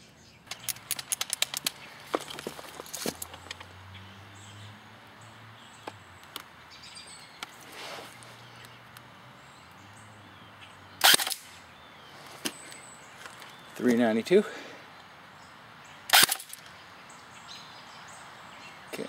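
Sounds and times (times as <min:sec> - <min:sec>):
birds chirping: 0:00.0 - 0:19.0
airsoft gun shot: 0:11.0 - 0:11.6, 0:16.1 - 0:16.6.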